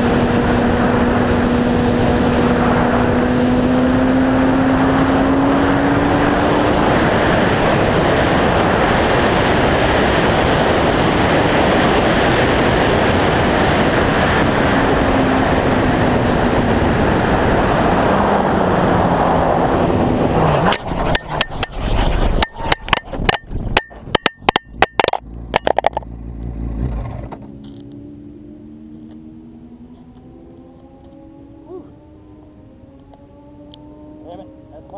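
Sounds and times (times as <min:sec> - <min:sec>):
motorcycle engine: 0:00.0 - 0:34.9
wind and road noise: 0:00.0 - 0:34.9
brief grind: 0:20.5 - 0:25.7.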